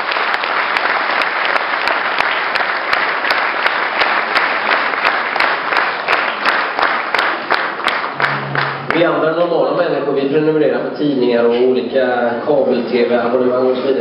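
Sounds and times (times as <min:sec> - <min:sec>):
audience applauding: 0:00.0 - 0:09.2.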